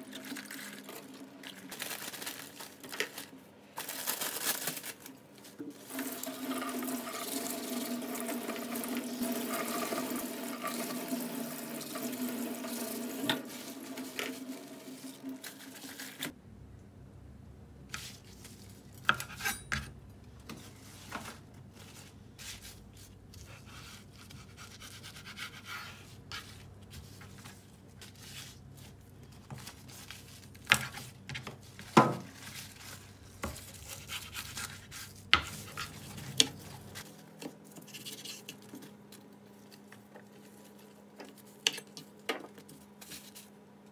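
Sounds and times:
tap water running into sink: 5.8 - 16.3
knife scraping cutting board: 19.0 - 19.9, 21.8 - 27.2, 33.4 - 37.0.

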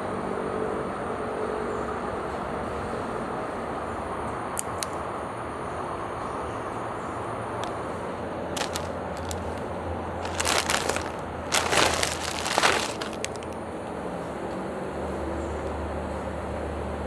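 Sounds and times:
puff snack crackling when squeezed: 8.6 - 9.6, 10.2 - 13.6
plastic snack packaging crinkling: 8.6 - 13.6.

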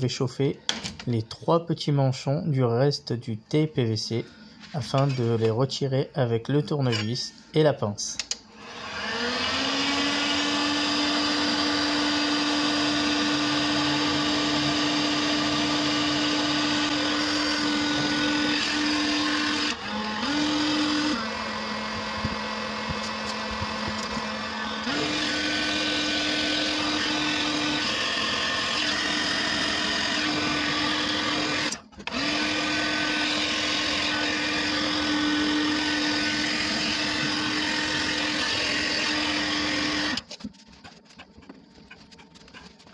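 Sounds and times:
heat gun fan humming: 13.2 - 27.9, 28.8 - 33.4.

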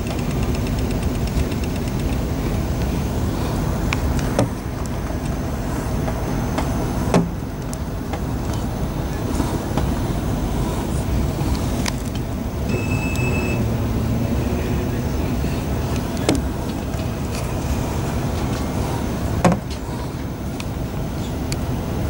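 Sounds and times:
sharp clicks: 0.0 - 2.9
train interior rumble: 0.0 - 22.0
high beep: 12.7 - 13.8.

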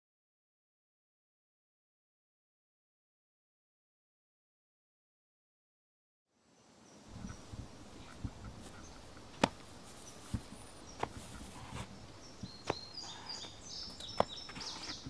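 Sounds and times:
open-air background noise: 6.3 - 15.0
birds chirping: 6.6 - 15.0
footsteps on pavement: 8.5 - 15.0.

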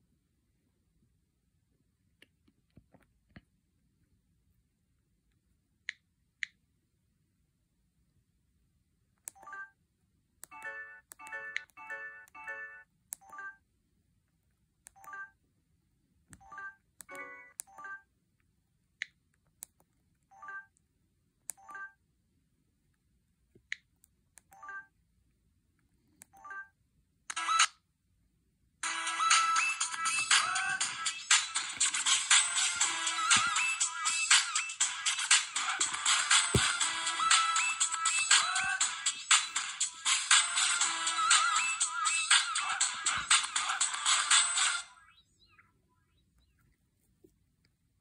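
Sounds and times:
phone ringtone: 10.5 - 13.6, 16.4 - 18.1.

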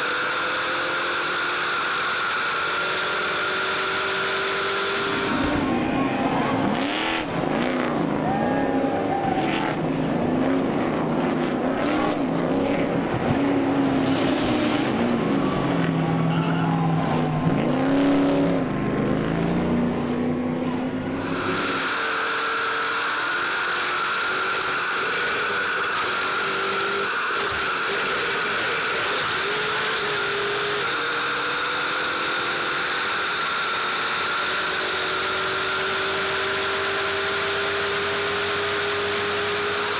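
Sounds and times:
race truck engines revving: 0.0 - 39.9
engine drone inside cab: 18.4 - 39.9.

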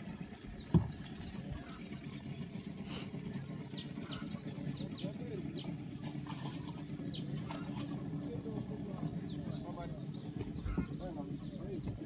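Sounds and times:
birds chirping: 0.0 - 12.0
dull thump: 0.7 - 1.0.

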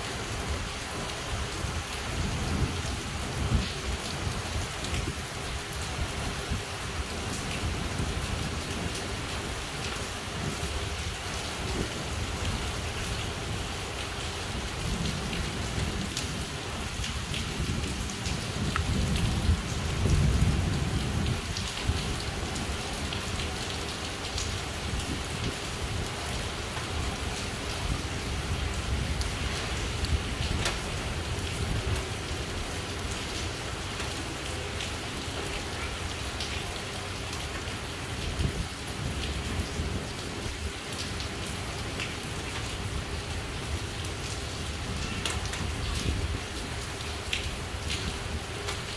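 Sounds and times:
heavy rain pouring: 0.0 - 48.9
sharp raindrop ticks: 30.0 - 30.9.

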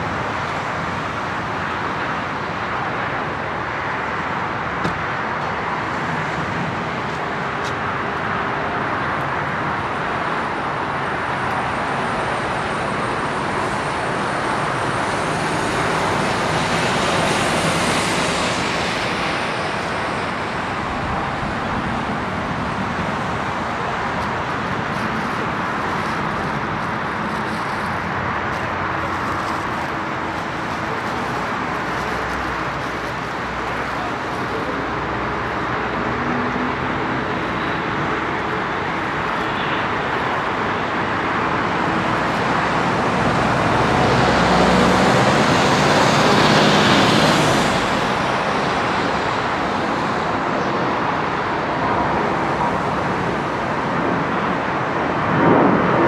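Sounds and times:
aircraft noise: 0.0 - 56.0
ground vehicles: 0.0 - 56.0.

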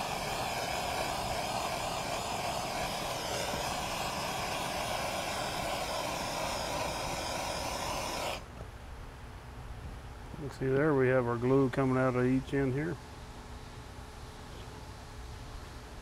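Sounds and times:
gas torch hissing: 0.0 - 8.5.

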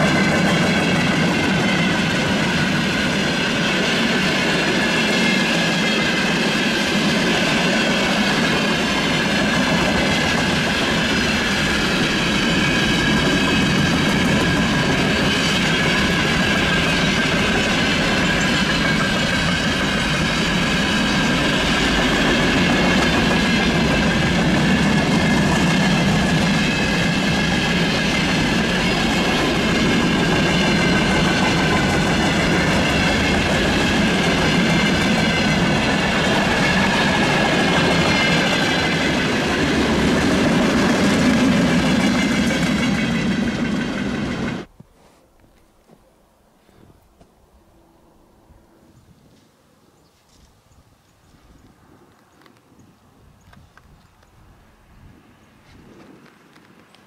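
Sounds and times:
train wheels rumbling on rails: 0.0 - 44.8.

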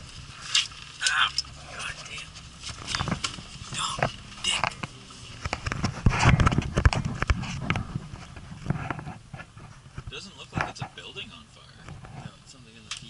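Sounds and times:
camera knocking and rubbing: 1.8 - 11.0, 11.8 - 12.4.

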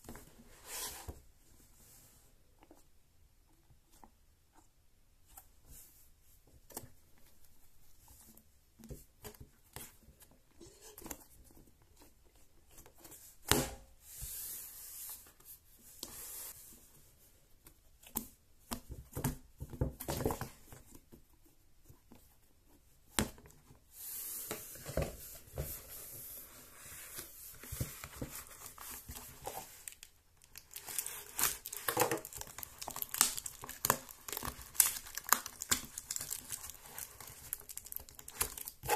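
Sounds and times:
cardboard packaging rustling and tearing: 27.1 - 38.9.

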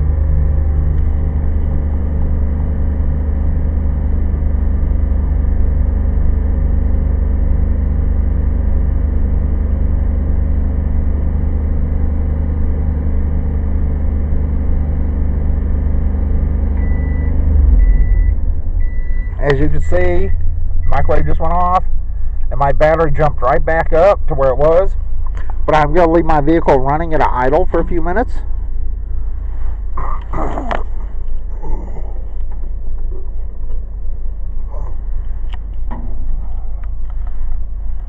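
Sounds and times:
microwave humming: 0.0 - 22.2
van engine at raised revs: 0.0 - 38.0
microwave timer beeps: 16.8 - 19.5.

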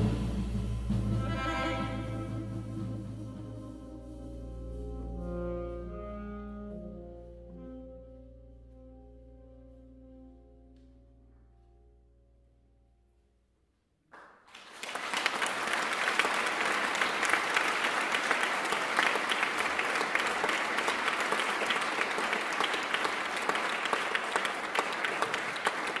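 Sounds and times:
audience applause: 14.2 - 26.0.

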